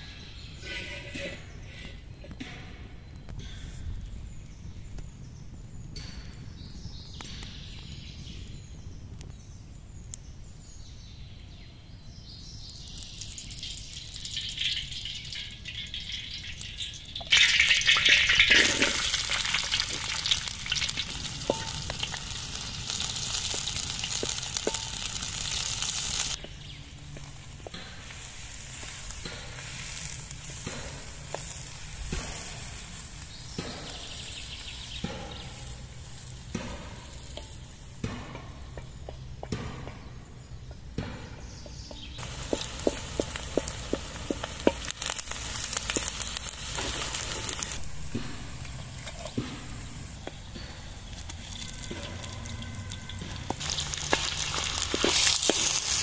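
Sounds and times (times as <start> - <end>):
oil sizzling faintly: 12.6 - 38.0, 42.2 - 56.0.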